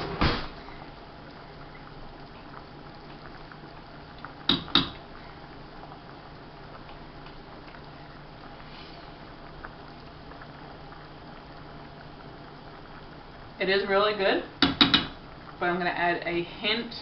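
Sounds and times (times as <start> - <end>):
pot of water boiling: 0.0 - 17.0.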